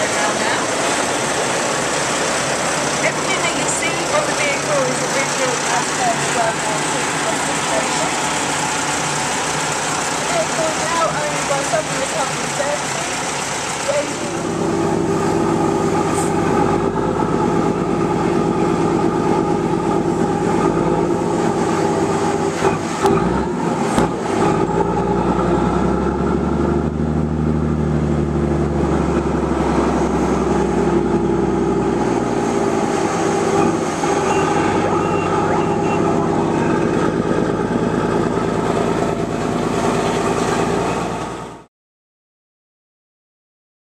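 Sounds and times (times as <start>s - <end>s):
truck engine running under load: 0.0s - 41.7s.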